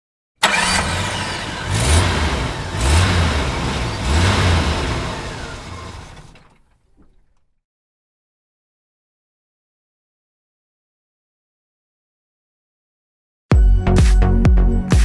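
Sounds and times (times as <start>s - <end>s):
engine revving: 0.4s - 6.5s.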